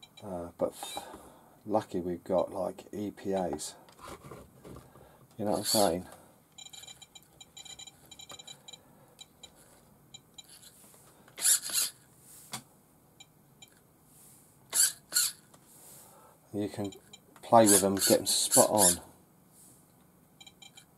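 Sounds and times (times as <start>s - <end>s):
servo whirring: 11.4s - 12.0s, 14.7s - 15.4s.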